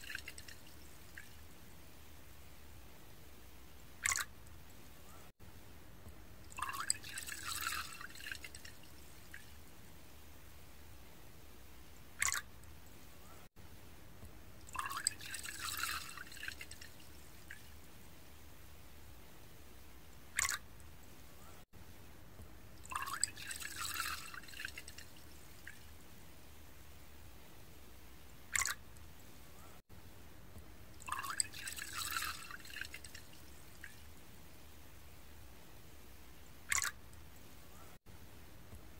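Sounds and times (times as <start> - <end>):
liquid pouring into a cup: 6.5 - 9.4, 14.7 - 17.6, 22.9 - 25.8, 31.0 - 34.0, 36.7 - 37.0.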